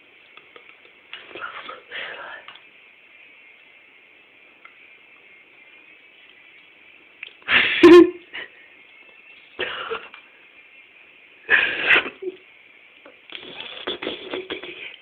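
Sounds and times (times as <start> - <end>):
person stifled laughter: 7.5 - 8.5, 13.7 - 15.0.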